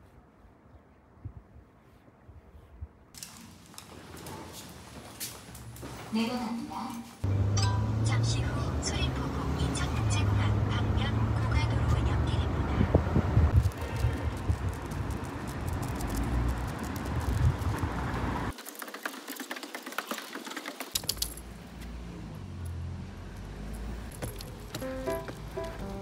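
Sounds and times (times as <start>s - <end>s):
music with plucked notes: 24.8s - 26.0s.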